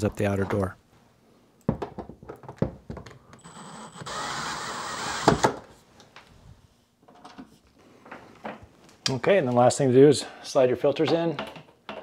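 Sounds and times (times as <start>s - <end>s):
power drill driving screw: 3.4s - 5.6s.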